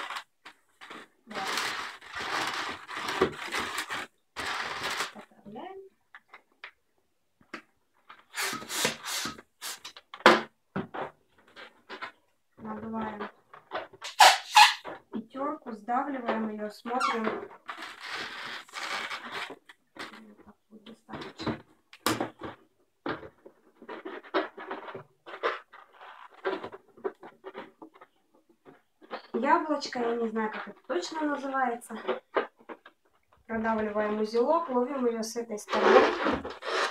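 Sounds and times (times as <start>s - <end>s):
balloon squeaking and rubbing: 0.0s - 5.4s, 8.1s - 10.1s, 13.2s - 15.1s, 16.9s - 20.4s, 23.8s - 28.2s, 35.6s - 36.9s
balloon pump strokes: 8.2s - 10.0s, 14.0s - 14.9s.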